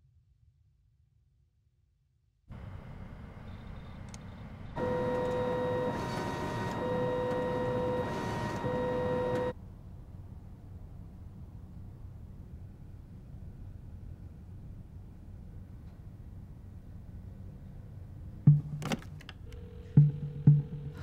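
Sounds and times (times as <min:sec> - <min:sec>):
motor whine: 0:03.4 - 0:09.6
printer whirring: 0:03.5 - 0:09.6.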